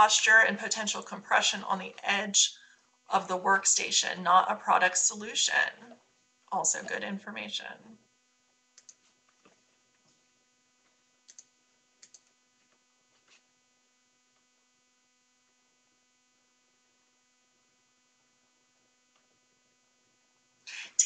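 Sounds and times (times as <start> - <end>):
faint electrical hum: 0.0 - 21.0
faint clicks: 8.8 - 9.6, 11.3 - 12.3.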